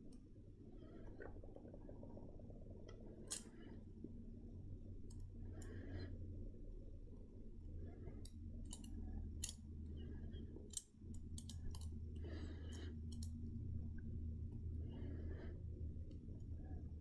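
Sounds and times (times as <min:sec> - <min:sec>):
low steady hum: 0:00.0 - 0:17.0
metal nippers snipping clicks: 0:08.7 - 0:09.6.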